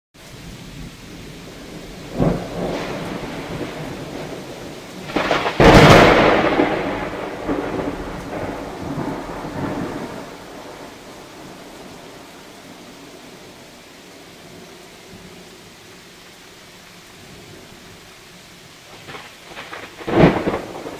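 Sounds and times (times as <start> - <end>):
heavy rain: 0.2 - 20.9
thunder cracking and rumbling: 0.7 - 12.3, 18.9 - 20.9.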